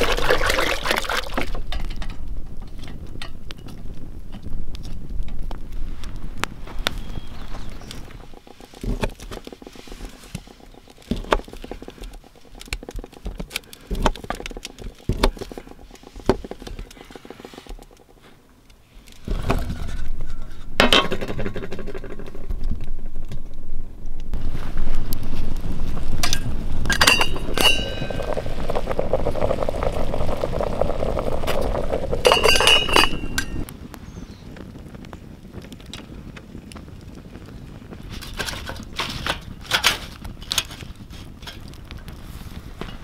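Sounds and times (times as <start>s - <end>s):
steady rushing noise: 2.0s - 18.3s, 20.6s - 33.9s
pot lid clinking: 32.3s - 33.6s.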